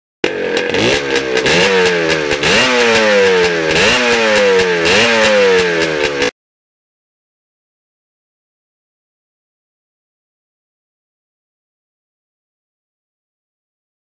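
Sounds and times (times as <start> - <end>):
motorcycle engine revving: 0.2 - 6.4.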